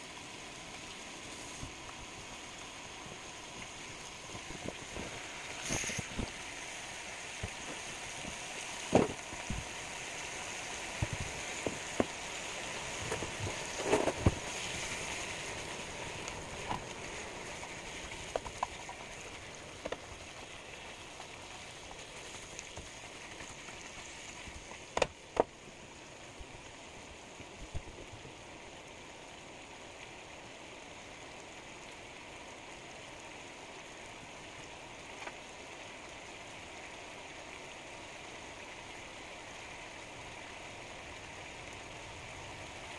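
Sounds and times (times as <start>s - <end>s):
bacon sizzling in a frying pan: 0.0s - 25.8s.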